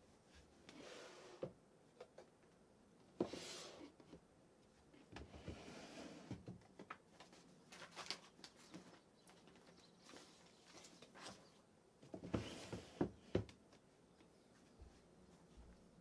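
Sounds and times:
drawers sliding open: 12.2 - 13.1.

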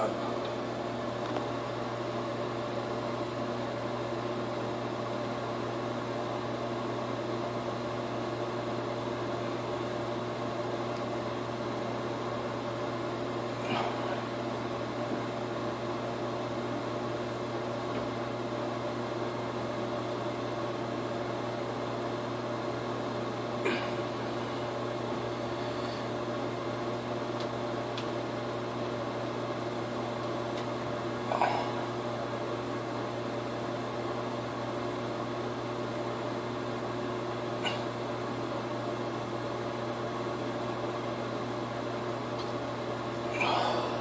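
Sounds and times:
steady machine hum: 0.0 - 44.0.

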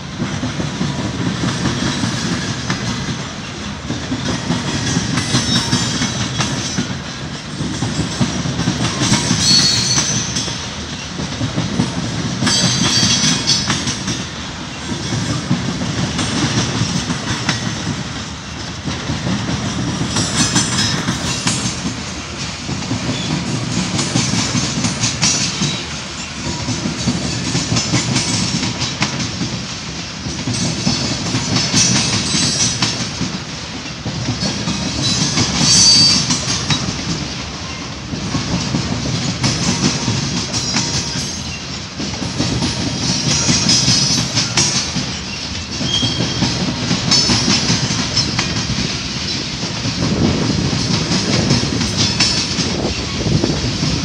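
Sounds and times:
train wheels clacking over rail joints: 0.0 - 54.0
high-pitched wheel squeals: 9.4 - 10.5, 35.6 - 36.3, 45.8 - 46.4.

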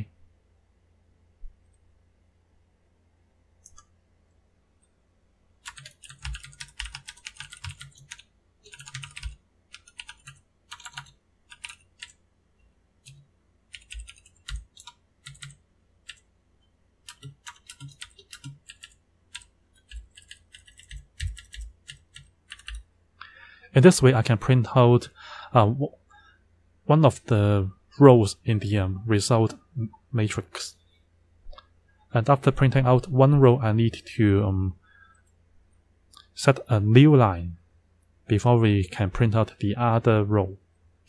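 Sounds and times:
typing on a computer keyboard: 5.6 - 12.2, 13.0 - 16.3, 17.0 - 22.9.

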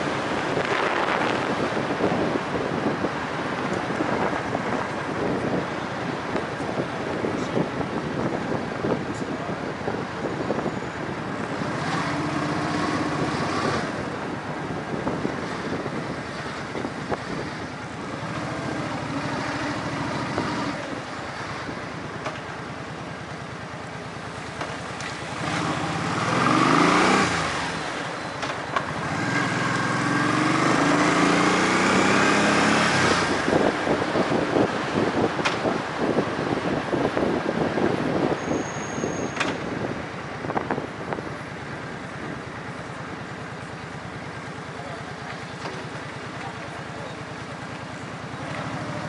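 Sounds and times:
vehicle engines passing: 0.0 - 49.0
engine revving: 25.3 - 28.0, 28.9 - 33.7.

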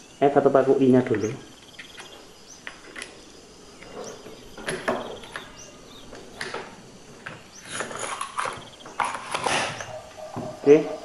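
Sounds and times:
magazine rattling and clicking: 7.6 - 9.6.

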